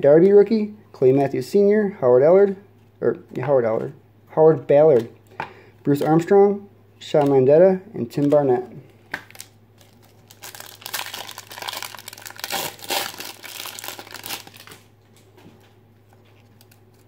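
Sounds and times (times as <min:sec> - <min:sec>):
wrapper crinkling and tearing: 0:09.1 - 0:14.9, 0:16.2 - 0:17.0.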